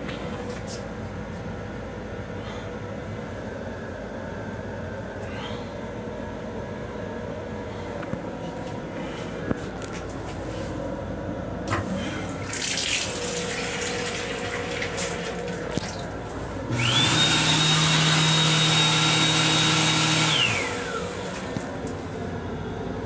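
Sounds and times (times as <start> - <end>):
motor whine: 13.8 - 23.0.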